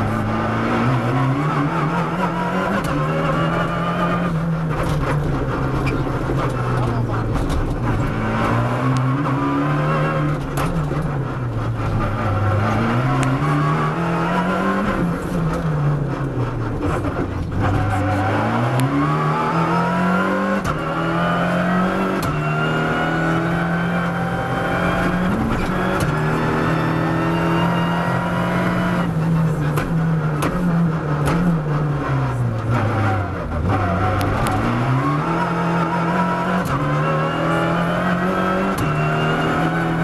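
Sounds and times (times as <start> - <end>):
rally car engine revving: 0.0 - 40.0.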